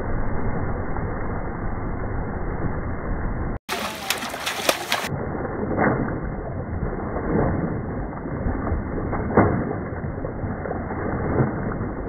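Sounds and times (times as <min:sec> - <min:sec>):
hands splashing water in stream: 0:03.7 - 0:05.1, 0:05.7 - 0:12.0.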